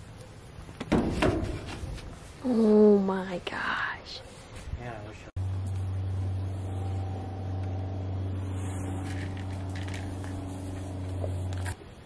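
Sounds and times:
steady low hum: 5.3 - 12.0.

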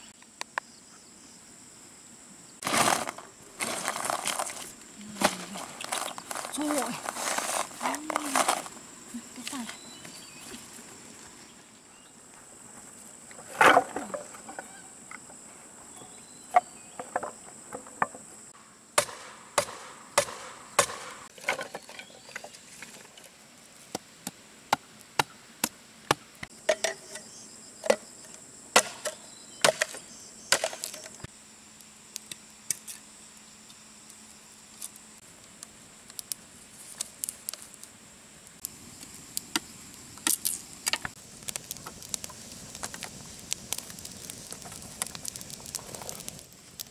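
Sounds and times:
insects buzzing: 0.0 - 46.9
dry sticks cracking and snapping: 39.4 - 46.9.

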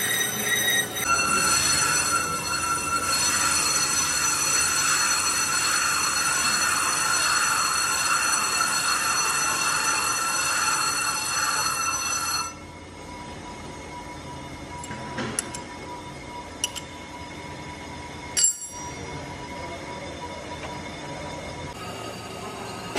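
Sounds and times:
lathe cutting metal squeal: 0.0 - 12.6, 18.9 - 22.9
lathe running: 0.0 - 12.6, 19.0 - 22.9.

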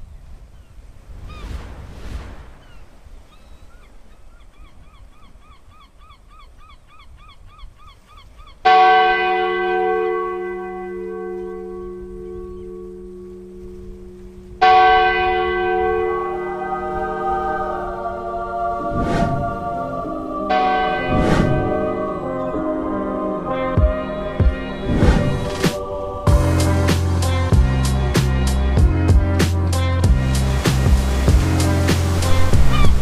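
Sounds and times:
large bell ringing: 8.7 - 17.3.

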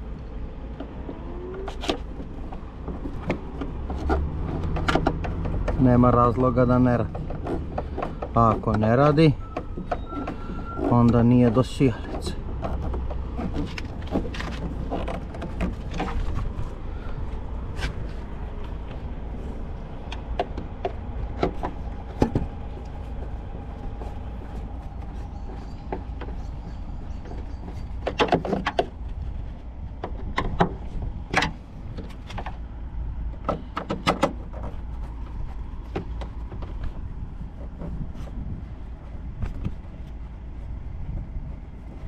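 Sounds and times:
steady low rumble: 0.0 - 42.0.

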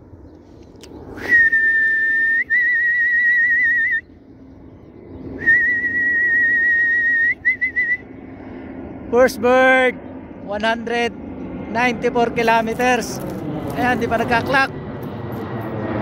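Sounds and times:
person whistling: 1.2 - 4.0, 5.4 - 8.0.

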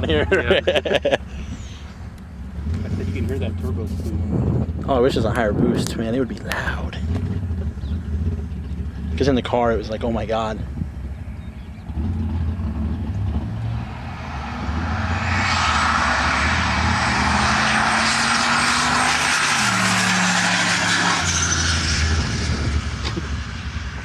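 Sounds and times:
car engine at full throttle: 0.0 - 24.0
turbo whine: 10.7 - 24.0.

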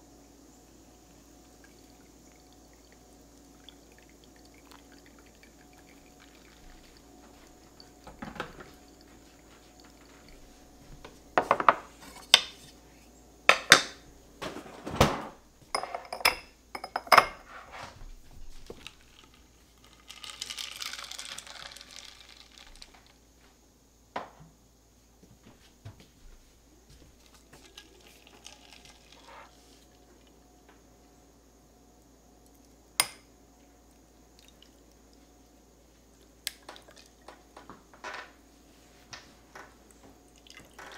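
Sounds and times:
glass tumblers clinking: 3.9 - 12.6, 15.7 - 17.5, 18.5 - 23.1, 27.3 - 29.6.

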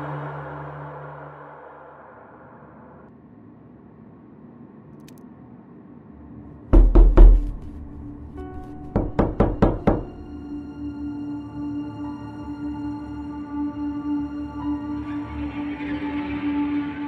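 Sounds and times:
soft ambient music: 0.0 - 3.2, 5.9 - 17.0
loud knocking: 6.8 - 10.3.

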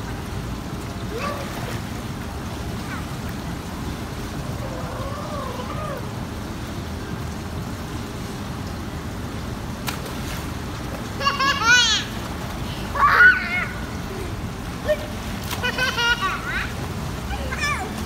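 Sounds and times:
child calling: 12.9 - 13.9, 15.9 - 18.0.

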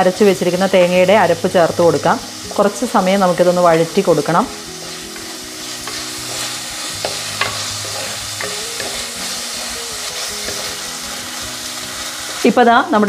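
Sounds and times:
vegetables sizzling in oil: 0.0 - 13.0
wooden spatula scraping pot: 4.8 - 9.4.

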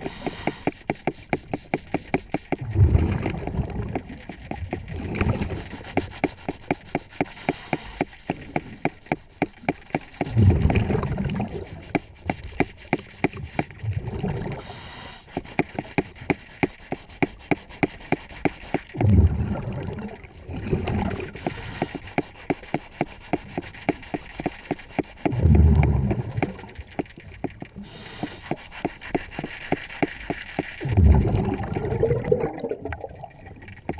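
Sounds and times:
scouring pad scraping underwater: 0.0 - 33.2
exhaled bubbles rumbling: 2.6 - 5.9, 10.3 - 11.9, 13.4 - 14.8, 18.9 - 21.6, 25.3 - 28.1, 30.8 - 33.9.

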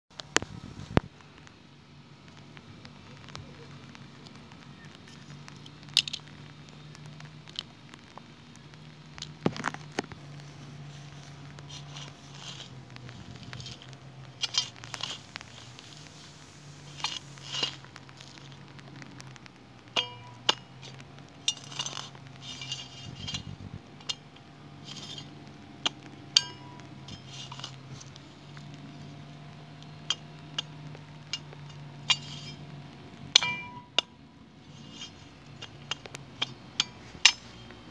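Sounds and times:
steady low hum: 0.1 - 37.9
shovel scraping stony soil: 10.5 - 18.6, 20.0 - 28.4
blade clinking against pebbles: 11.6 - 18.6, 20.0 - 28.0.

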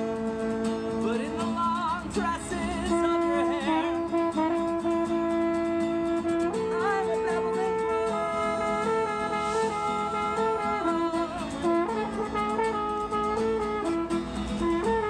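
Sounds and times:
strummed acoustic guitar: 0.0 - 15.0
french horn melody: 3.1 - 15.0.

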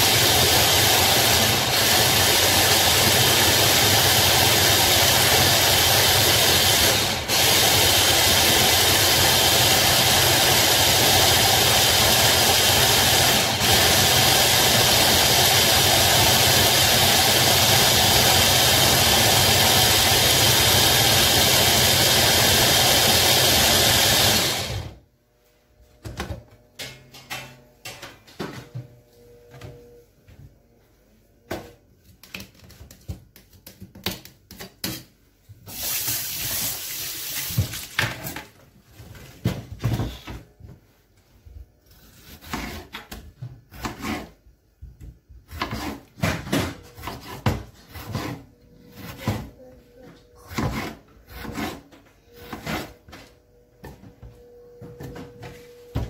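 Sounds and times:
blender motor running: 0.0 - 25.0.

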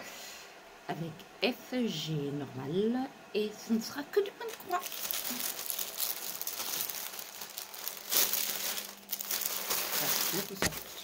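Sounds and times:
plastic bag crinkling: 4.4 - 11.0.

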